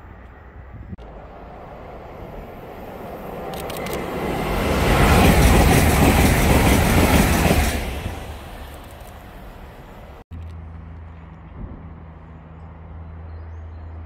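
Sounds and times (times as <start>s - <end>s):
train wheels on rail: 1.0s - 10.2s.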